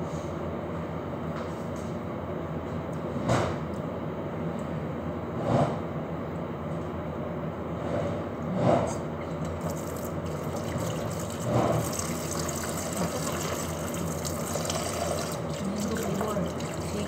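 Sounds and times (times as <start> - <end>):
pot bubbling on gas stove: 9.5 - 17.0.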